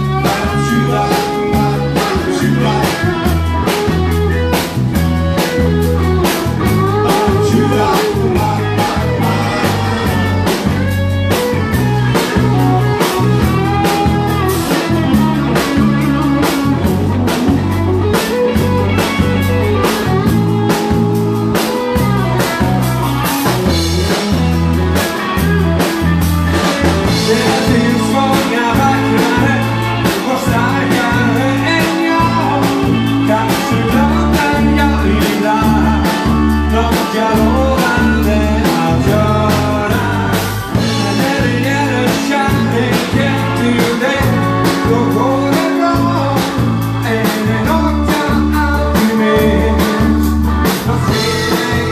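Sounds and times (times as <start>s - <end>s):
live blues band playing: 0.0s - 51.9s.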